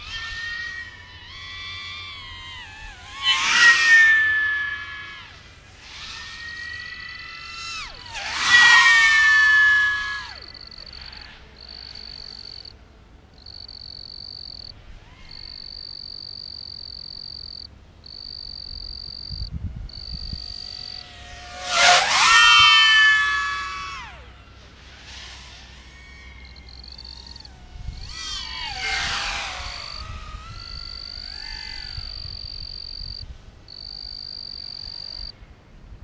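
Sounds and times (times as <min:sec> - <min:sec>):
drone propeller whine: 0:00.0 - 0:35.4
high steady whistle: 0:03.2 - 0:05.4.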